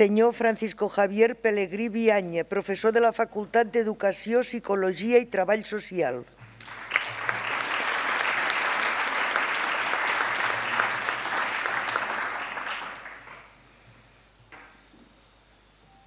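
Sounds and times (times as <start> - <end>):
audience applauding: 6.6 - 13.5.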